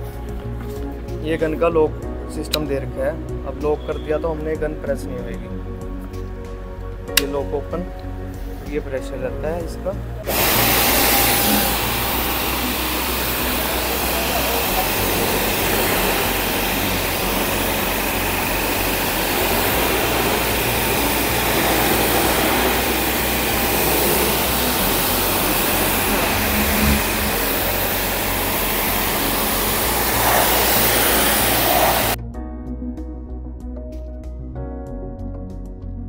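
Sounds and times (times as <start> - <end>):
soft background music: 0.0 - 36.0
pressure washer motor humming: 10.2 - 32.2
water jet hissing: 10.3 - 32.2.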